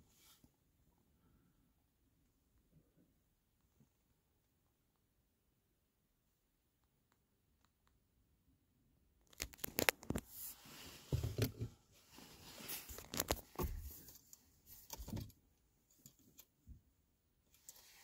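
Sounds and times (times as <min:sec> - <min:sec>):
rustling and crinkling: 0:09.3 - 0:16.5.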